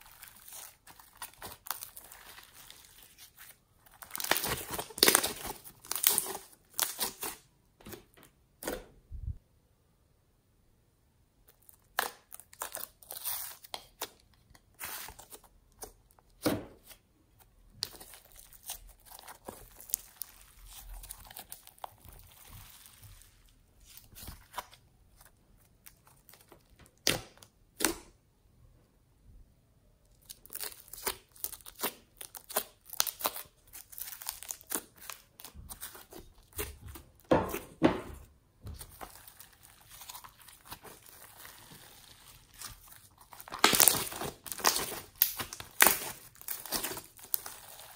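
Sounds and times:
slime squished by hand: 0:38.7 - 0:47.9.

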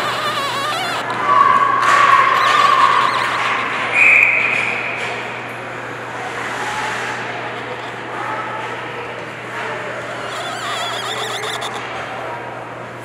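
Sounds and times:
long high-pitched calls: 0:00.0 - 0:01.1, 0:02.2 - 0:04.6, 0:10.1 - 0:11.8
steady background hum: 0:00.0 - 0:13.0.

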